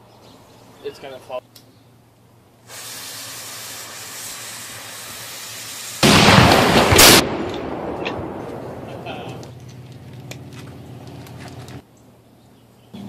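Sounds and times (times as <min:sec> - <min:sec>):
fuse hissing: 0:02.6 - 0:06.4
cannon firing blast: 0:06.0 - 0:09.4.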